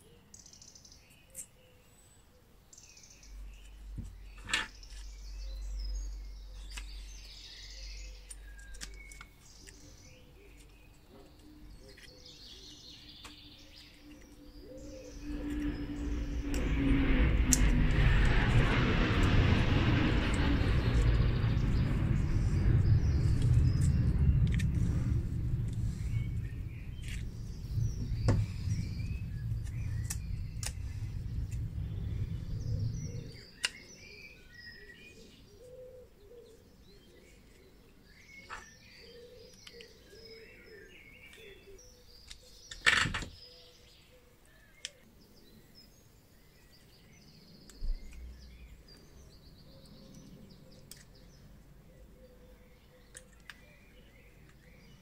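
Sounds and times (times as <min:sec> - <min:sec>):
birds chirping: 0:00.0 - 0:55.0
low rumble: 0:14.2 - 0:34.8.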